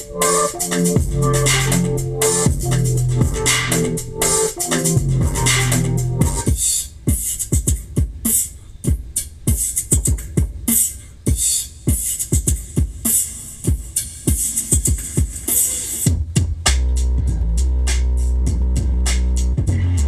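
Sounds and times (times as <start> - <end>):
crisp hi-hats: 0.0 - 20.0
deep punchy kick drums: 0.9 - 4.2, 4.9 - 8.3, 8.9 - 10.7, 16.1 - 17.6, 18.5 - 20.0.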